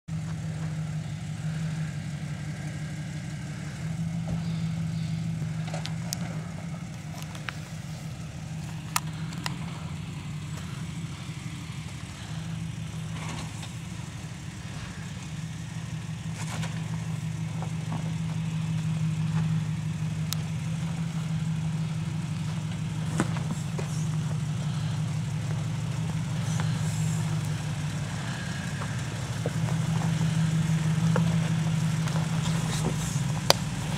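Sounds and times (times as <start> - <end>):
car engine droning: 0.0 - 33.9.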